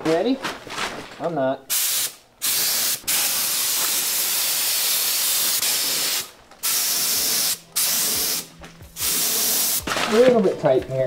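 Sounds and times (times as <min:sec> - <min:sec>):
spray gun hissing: 0:01.7 - 0:09.9.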